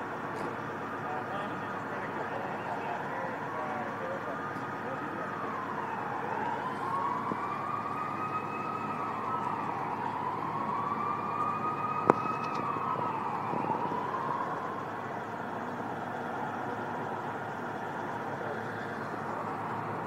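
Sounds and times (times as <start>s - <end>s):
siren wailing: 0.7s - 20.0s.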